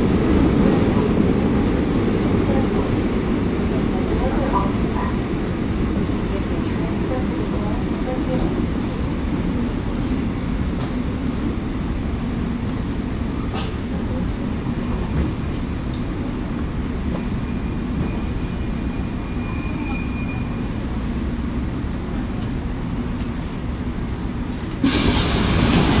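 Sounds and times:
train wheels rumbling on rails: 0.0 - 26.0
high wheel squeal: 9.6 - 24.3
loud hiss: 24.8 - 26.0.

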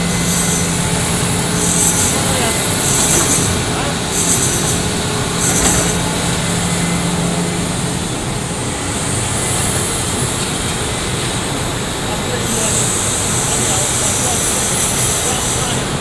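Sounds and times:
excavator diesel engine running: 0.0 - 16.0.

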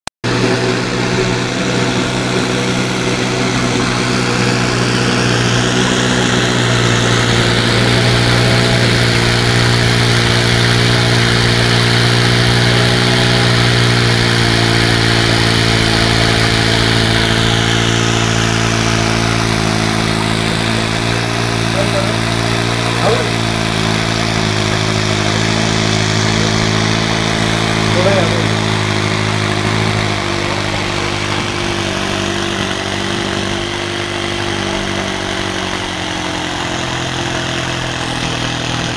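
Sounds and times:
stirrer motor humming: 0.2 - 38.9.

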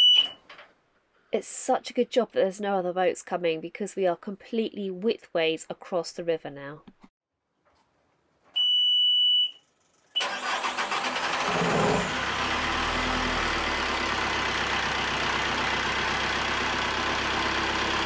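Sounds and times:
diesel engine starting and running: 9.9 - 18.0.

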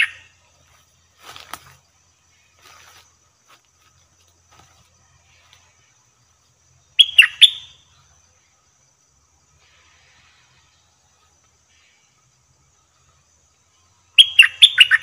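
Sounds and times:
bulbul calling: 0.0 - 0.3, 7.0 - 7.8, 14.1 - 15.0.

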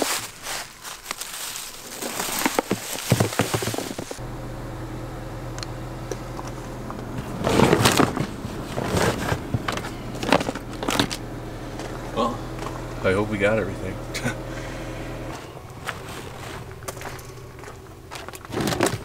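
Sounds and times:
footsteps crunching through leaves: 0.0 - 4.2, 15.1 - 19.0
plastic decoys rustling: 0.0 - 4.2, 6.2 - 12.8, 15.2 - 19.0
low hum inside a vehicle: 4.0 - 19.0.

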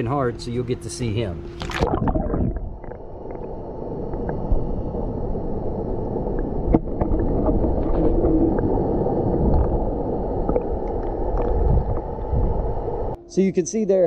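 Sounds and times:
muffled underwater rush: 1.4 - 13.2.

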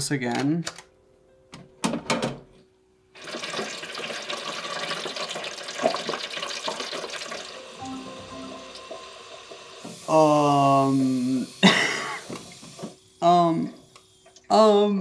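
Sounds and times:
fries sizzling in fryer oil: 3.2 - 12.9.

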